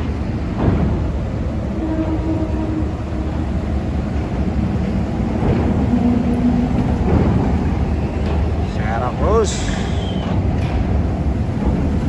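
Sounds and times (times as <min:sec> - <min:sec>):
heavy vehicle engines rumbling: 0:00.0 - 0:12.0.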